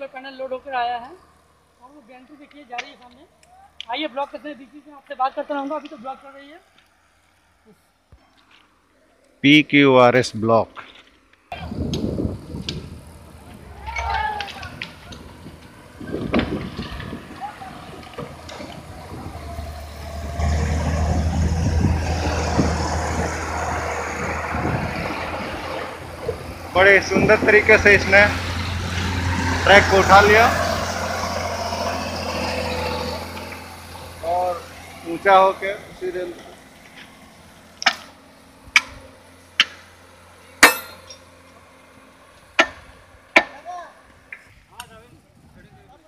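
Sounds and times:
diesel engine running: 11.5 - 43.3.

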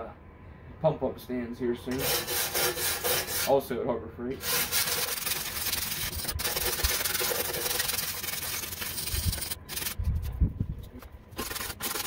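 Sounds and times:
wire brush scrubbing metal: 1.9 - 3.6, 4.4 - 10.3, 11.4 - 12.0.

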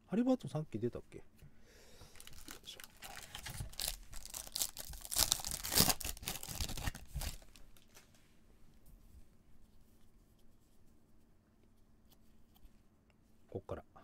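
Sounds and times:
foil wrapper crinkling and tearing: 2.1 - 8.0.

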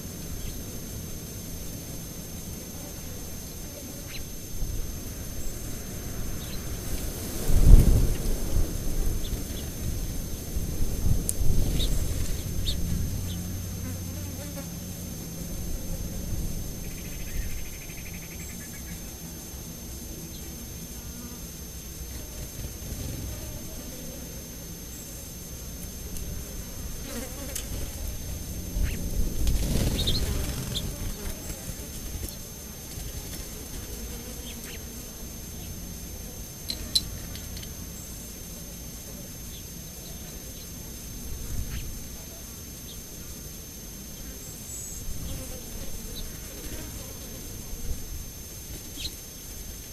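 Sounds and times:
flying insect buzzing: 0.0 - 49.9
low background noise: 0.0 - 49.9.

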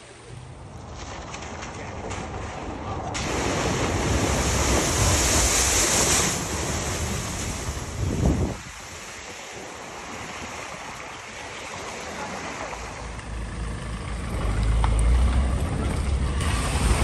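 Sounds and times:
vehicle splashing through floodwater: 0.2 - 17.0.

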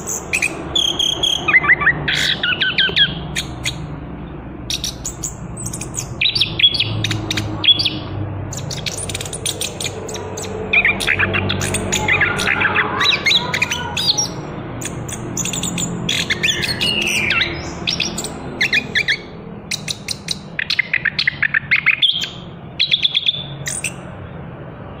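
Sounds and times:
thrush singing: 4.7 - 24.0.

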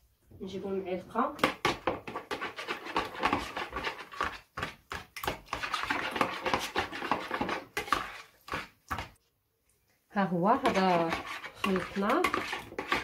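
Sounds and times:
spoon beating in plastic bowl: 10.6 - 13.0.

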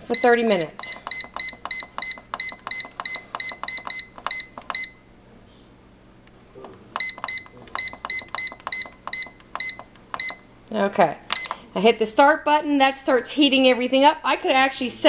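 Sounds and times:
pressure cooker short beeps: 0.2 - 5.0, 7.0 - 10.5, 11.3 - 11.6.

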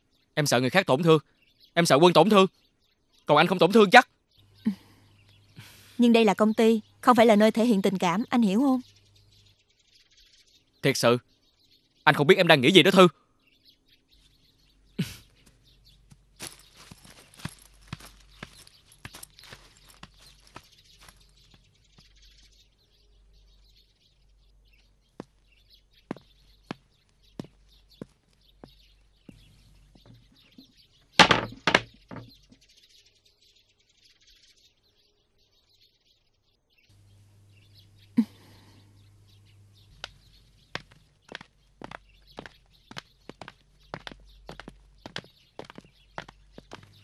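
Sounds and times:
loud thunk: 31.2 - 32.3
footsteps on hard floor: 40.0 - 47.0.

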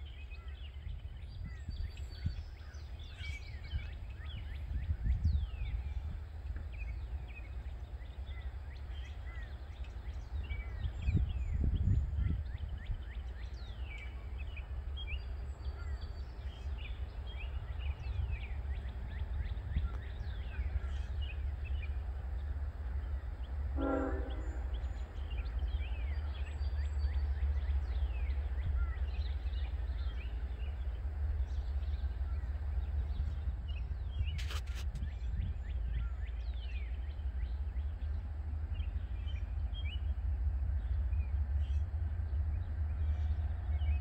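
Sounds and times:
low steady rumble: 0.0 - 44.0
distant locomotive horn: 23.5 - 29.2.

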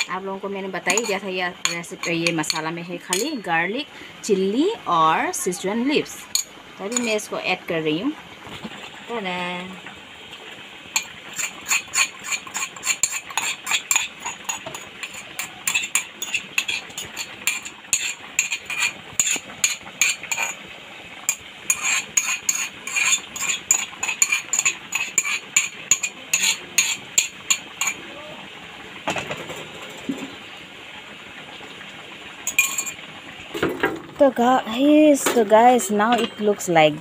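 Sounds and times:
metal spoon clinking on cup: 0.9 - 3.4, 32.5 - 33.0, 36.1 - 36.5.

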